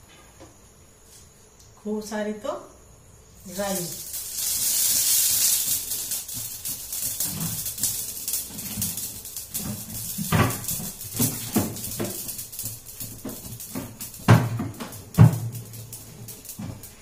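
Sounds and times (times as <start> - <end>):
hot oil sizzling and crackling: 3.2 - 17.0
steel containers clinking: 3.5 - 17.0.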